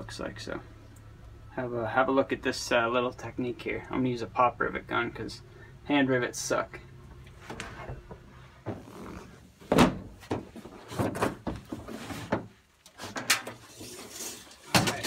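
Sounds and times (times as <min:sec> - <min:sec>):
knocks and thumps on plastic: 0:09.6 - 0:12.6.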